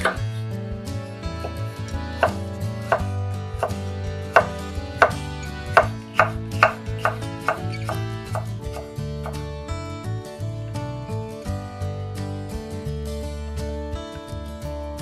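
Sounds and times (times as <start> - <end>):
knife slicing onto wooden board: 4.4 - 9.4.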